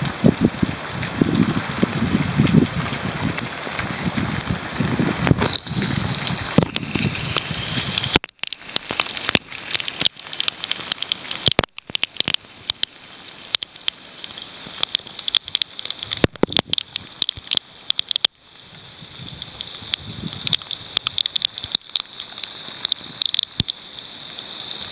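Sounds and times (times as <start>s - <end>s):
wind buffeting microphone: 0.0s - 8.2s, 18.7s - 21.8s
raindrops tapping and splashing: 0.0s - 24.9s
steady hiss of rain: 0.0s - 24.9s.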